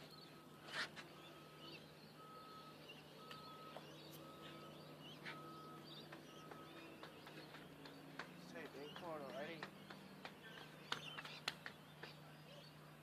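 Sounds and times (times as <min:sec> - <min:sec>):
reversing alarm beeping: 0:00.0 - 0:07.6.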